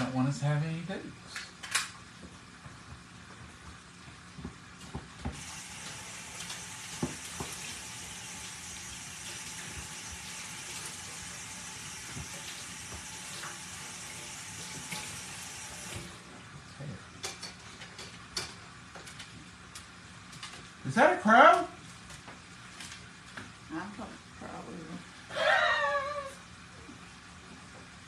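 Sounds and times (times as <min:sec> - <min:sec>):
faucet running: 0:05.4 - 0:16.3.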